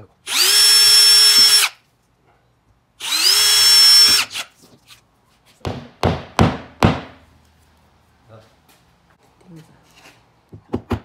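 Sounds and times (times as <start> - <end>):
cordless drill whining: 0.3 - 1.8, 3.0 - 4.5.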